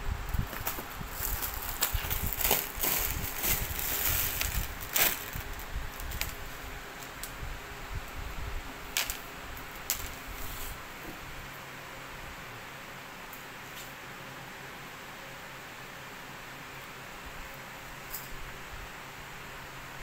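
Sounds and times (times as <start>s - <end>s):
plastic packaging crinkling: 0.5s - 6.4s.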